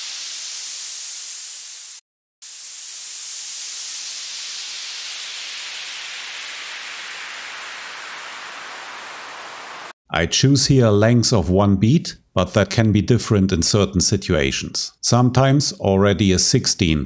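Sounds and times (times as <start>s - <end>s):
white-noise uplifter: 0.0s - 9.9s
white-noise downlifter: 2.8s - 9.9s.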